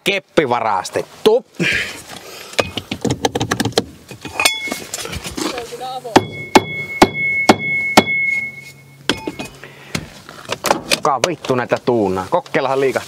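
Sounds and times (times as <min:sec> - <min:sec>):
hammer striking metal: 0:04.4 - 0:04.8, 0:06.2 - 0:09.6.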